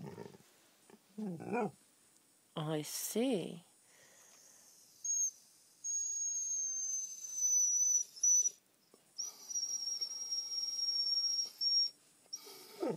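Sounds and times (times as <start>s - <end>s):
dog whining: 0.0s - 0.4s, 1.2s - 1.8s, 4.8s - 8.6s, 9.2s - 12.9s.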